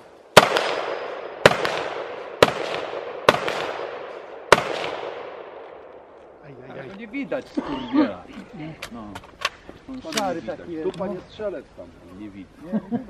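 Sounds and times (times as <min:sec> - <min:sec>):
rifle shots with echo: 0:00.0 - 0:06.2.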